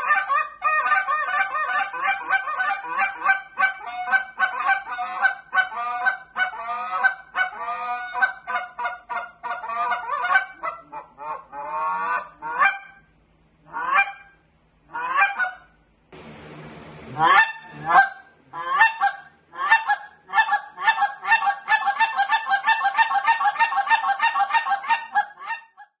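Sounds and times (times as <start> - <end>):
goose call clucks and honks: 0.0 - 13.0, 13.7 - 15.8, 17.2 - 26.0.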